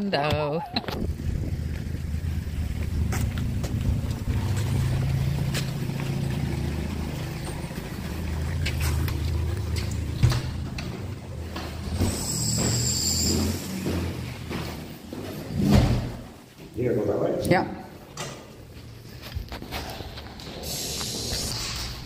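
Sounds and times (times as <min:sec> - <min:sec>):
car engine hum from cabin: 0:00.9 - 0:13.0.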